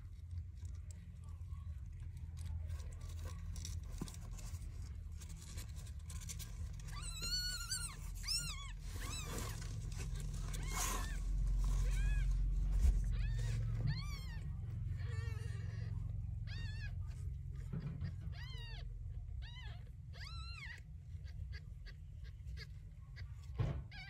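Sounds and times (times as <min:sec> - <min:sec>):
low steady hum: 0:00.0 - 0:24.0
kittens mewing: 0:06.3 - 0:24.0.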